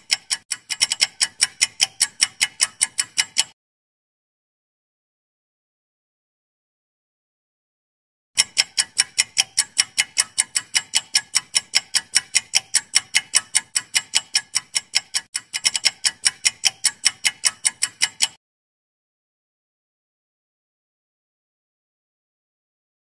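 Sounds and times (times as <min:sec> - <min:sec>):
fast clock ticking: 0:00.0 - 0:03.6, 0:08.4 - 0:18.4.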